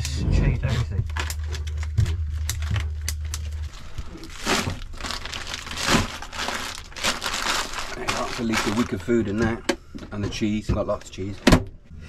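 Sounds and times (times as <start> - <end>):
low steady hum: 0.0 - 12.0
plastic bags crinkling: 1.0 - 10.2.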